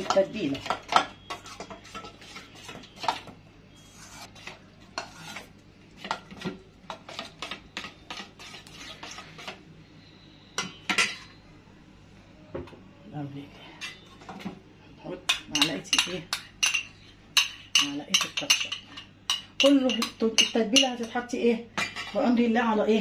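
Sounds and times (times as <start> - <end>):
metal spoon scraping steel bowl: 0.0 - 9.6.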